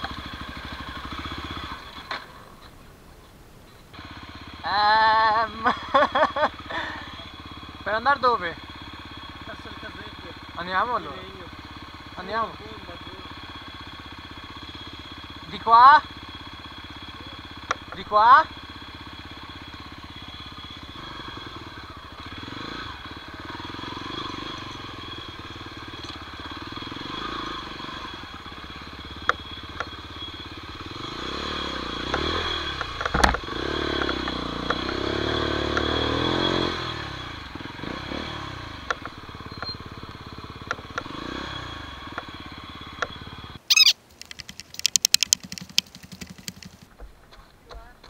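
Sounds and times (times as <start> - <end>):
motorbike engine revving: 0.0 - 2.6, 3.9 - 47.0
sharp clatters: 43.0 - 47.0.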